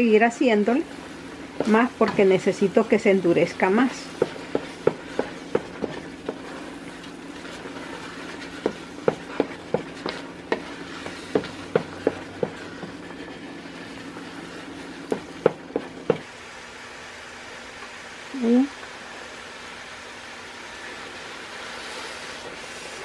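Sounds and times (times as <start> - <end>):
wooden spoon knocking in pot: 0.9 - 13.5, 14.5 - 16.2.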